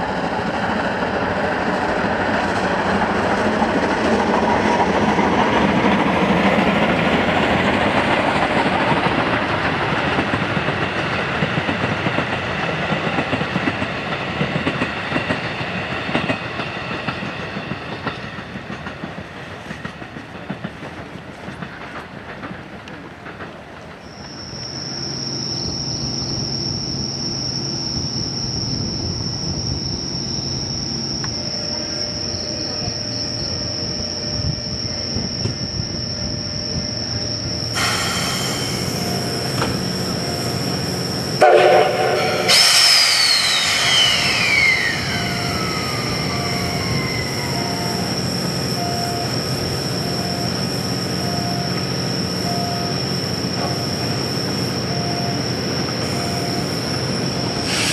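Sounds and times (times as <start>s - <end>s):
steam locomotive running: 0.0s - 57.9s
high-pitched whine: 24.1s - 57.9s
train whistle blast: 41.4s - 48.1s, 57.6s - 57.9s
high tone falling in pitch: 41.8s - 48.1s.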